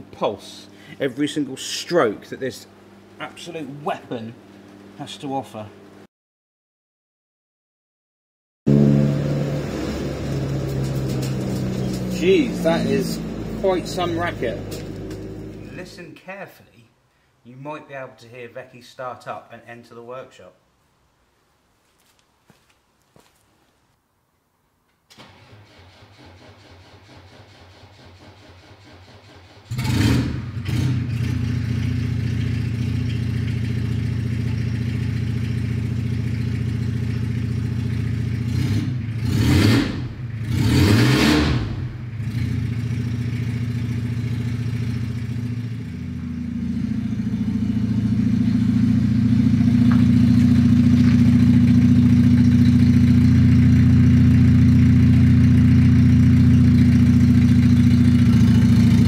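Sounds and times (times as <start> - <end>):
diesel van engine starting and revving: 8.7 - 16.0, 25.1 - 59.0.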